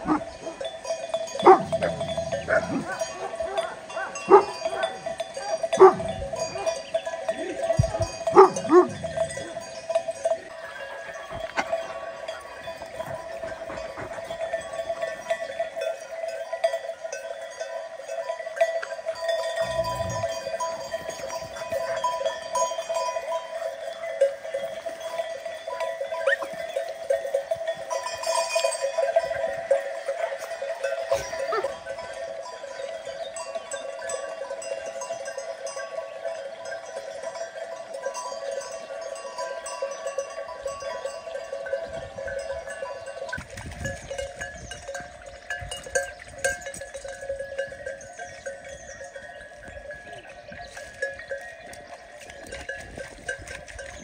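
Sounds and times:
livestock bells clinking: 0:00.0 - 0:54.0.

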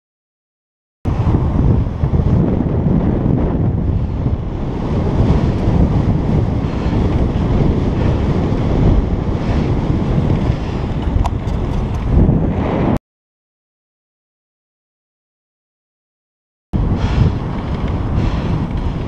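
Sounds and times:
wind buffeting microphone: 0:01.1 - 0:13.0, 0:16.8 - 0:19.0.

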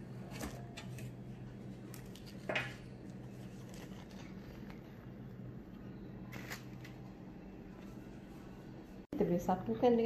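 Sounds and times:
steady low hum: 0:00.0 - 0:10.0
baking paper rustling: 0:00.2 - 0:05.1
paper crinkle: 0:01.8 - 0:05.0.

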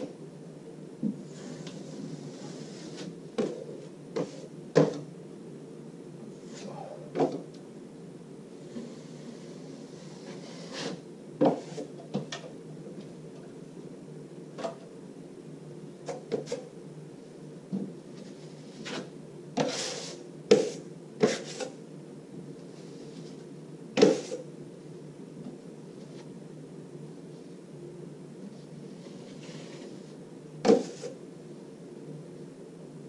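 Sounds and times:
steady low hum: 0:00.0 - 0:33.0
drywall knife scraping and clacking: 0:10.0 - 0:11.9.

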